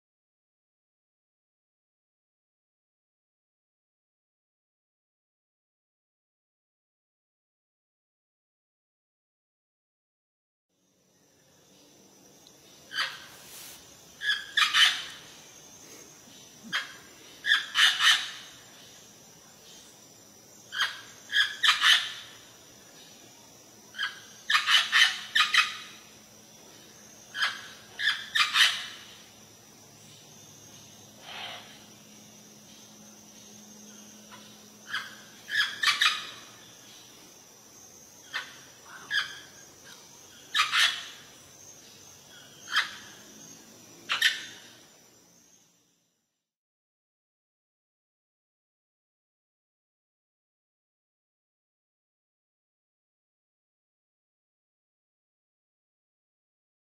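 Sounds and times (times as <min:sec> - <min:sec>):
parrot calling: 0:12.9 - 0:15.2, 0:16.6 - 0:18.5, 0:27.4 - 0:29.0, 0:34.3 - 0:36.4, 0:40.5 - 0:41.2, 0:44.1 - 0:44.5
parrot squawking: 0:14.2 - 0:15.1.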